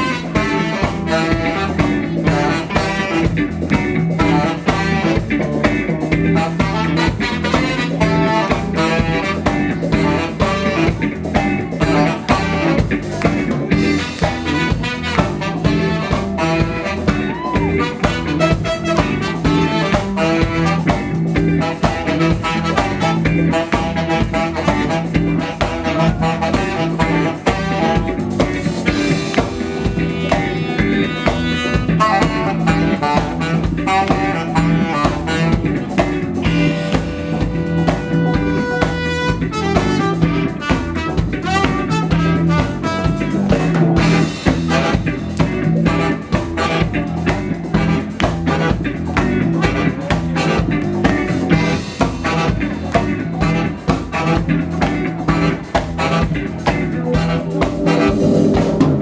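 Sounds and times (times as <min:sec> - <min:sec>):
live band playing: 0:00.0 - 0:59.0
saxophone: 0:00.0 - 0:59.0
long held horn notes: 0:28.9 - 0:45.2, 0:53.4 - 0:59.0.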